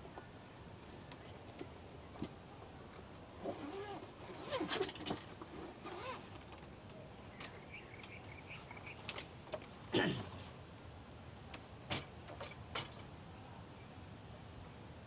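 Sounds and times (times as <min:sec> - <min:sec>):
faint chirping: 0:07.1 - 0:09.2.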